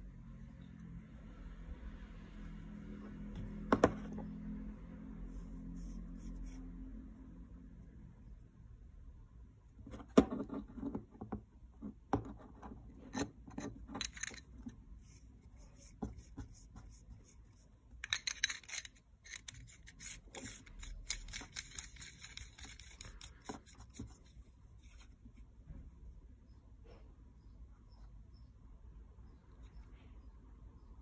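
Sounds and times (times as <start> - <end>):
metal parts clicking and knocking: 13.5 - 14.7, 18.0 - 23.4.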